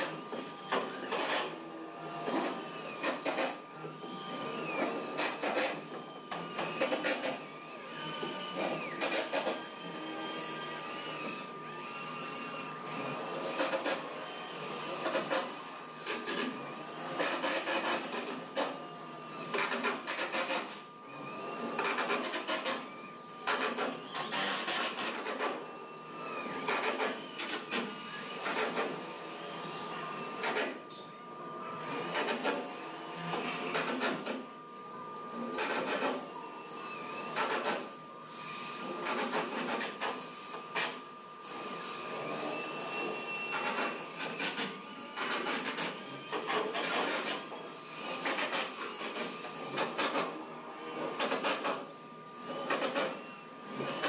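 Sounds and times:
cordless drill driving screws: 0:00.0 - 0:30.7, 0:35.4 - 0:50.3, 0:50.9 - 0:51.8, 0:52.4 - 0:54.0.

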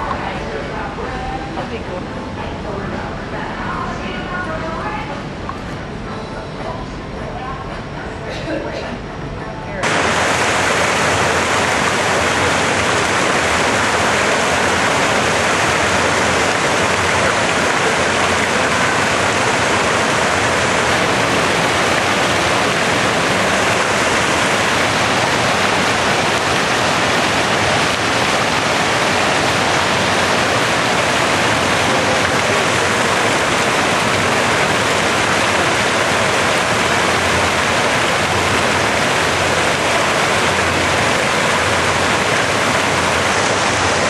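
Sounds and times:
fountain water splashing: 0:09.8 - 0:44.0.

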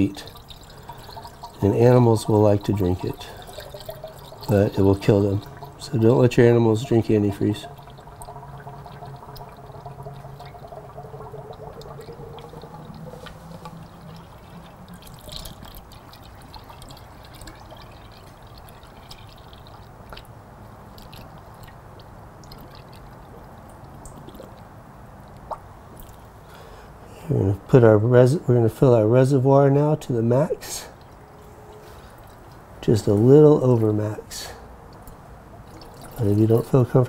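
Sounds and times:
liquid pouring from plastic jug: 0:00.0 - 0:24.7, 0:35.0 - 0:37.0.

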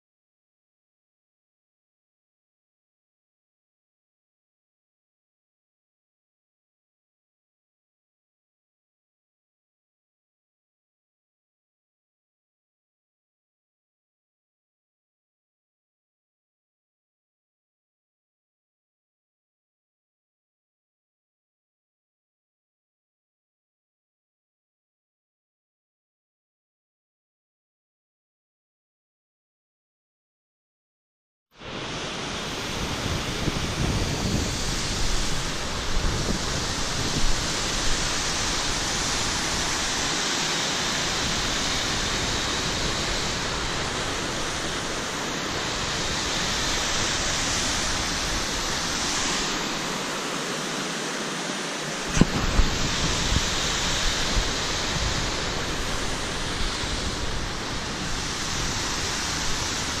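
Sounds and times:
wind rumbling on microphone: 0:31.6 - 0:50.6, 0:51.9 - 1:00.0
creek water rushing: 0:31.6 - 1:00.0.

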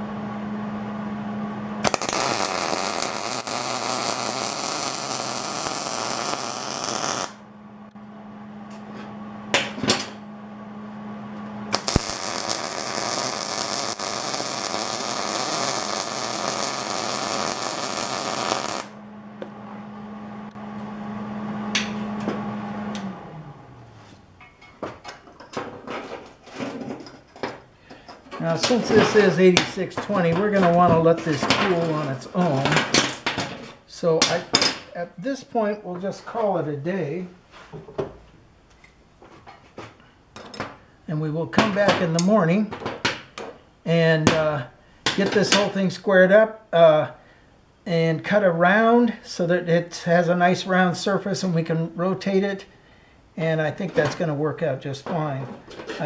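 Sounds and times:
steady low hum: 0:00.0 - 0:25.1
welding arc crackling: 0:01.8 - 0:07.4, 0:11.7 - 0:19.0, 0:28.4 - 0:32.7.

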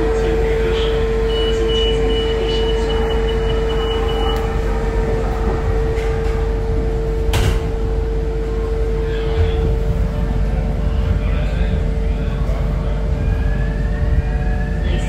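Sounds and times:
cabin hum: 0:00.0 - 0:15.0
high steady tone: 0:00.9 - 0:04.8.

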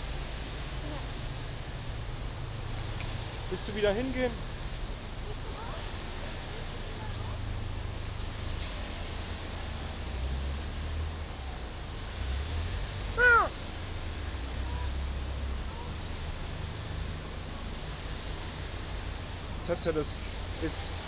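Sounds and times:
crow cawing: 0:13.2 - 0:13.6.

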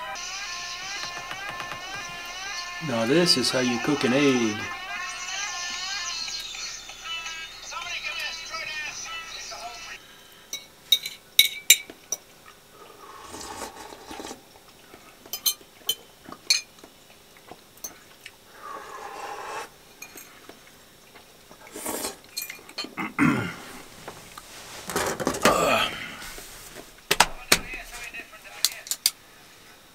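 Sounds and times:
shuffling noise: 0:23.6 - 0:28.6.

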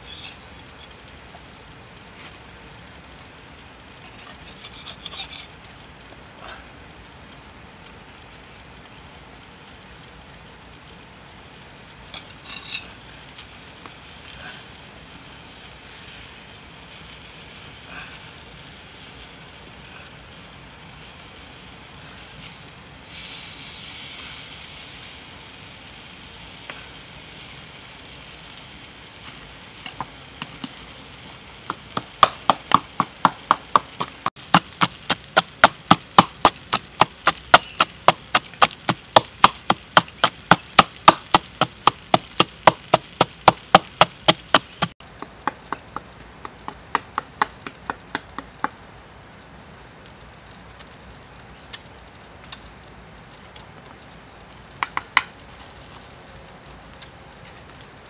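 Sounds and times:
food sizzling on hot stone: 0:00.0 - 0:58.0
wooden pestle pounding: 0:31.7 - 0:48.7.

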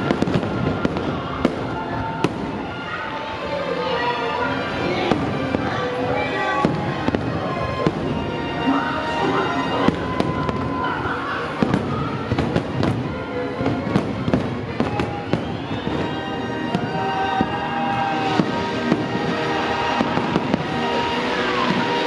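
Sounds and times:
fireworks bursting with bangs: 0:00.0 - 0:02.8, 0:05.0 - 0:08.8, 0:09.5 - 0:22.0
music with sustained tones: 0:00.0 - 0:22.0.

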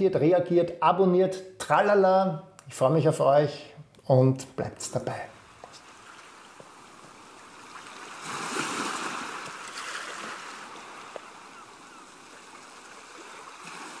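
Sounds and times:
ocean waves washing in: 0:05.4 - 0:14.0.

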